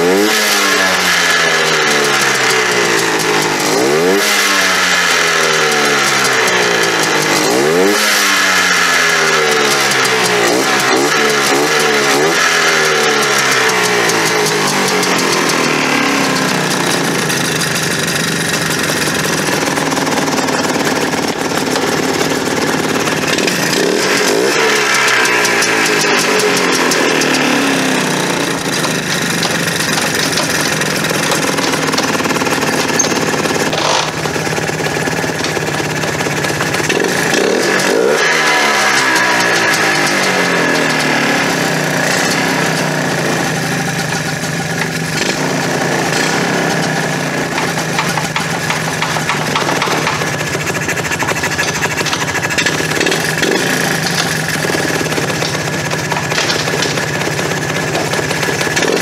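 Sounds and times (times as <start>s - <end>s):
two-stroke engine revving: 0.0s - 59.0s.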